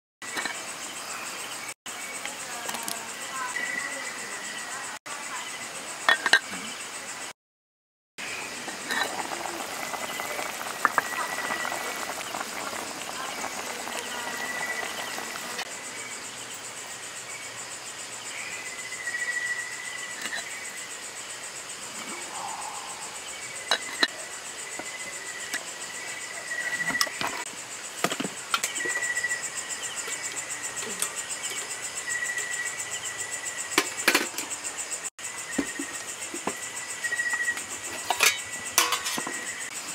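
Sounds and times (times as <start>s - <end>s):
low insect trill: 0.2s - 7.3s, 8.2s - 39.9s
night insects chirping: 0.2s - 7.4s, 8.2s - 39.9s
metal cookware clinking: 38.0s - 39.4s.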